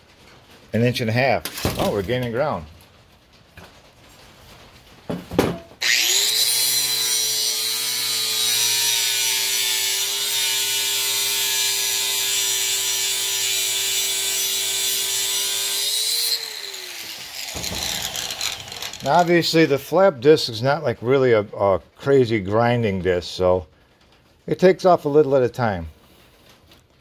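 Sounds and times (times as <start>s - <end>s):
angle grinder grinding metal: 5.8s - 19.7s.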